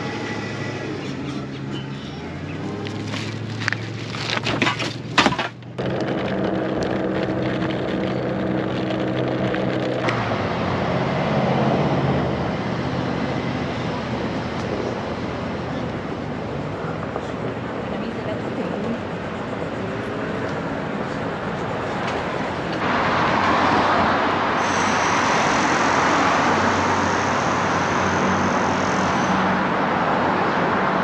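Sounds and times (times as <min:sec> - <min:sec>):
scooter rolling noise: 0:00.0 - 0:12.6
low hum: 0:05.7 - 0:21.9.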